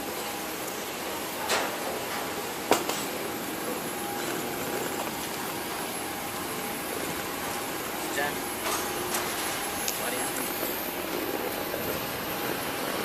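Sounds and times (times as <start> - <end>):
constant hiss: 0.0 - 13.0
faint steady whine: 0.0 - 13.0.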